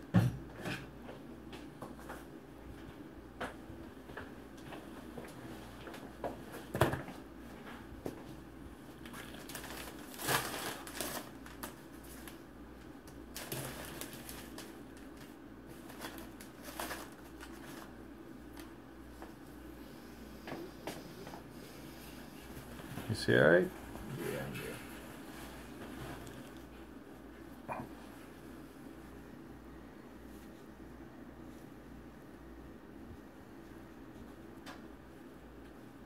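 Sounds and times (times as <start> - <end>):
paper rustling and crinkling: 8.9 - 12.4, 13.2 - 18.7, 24.8 - 26.8.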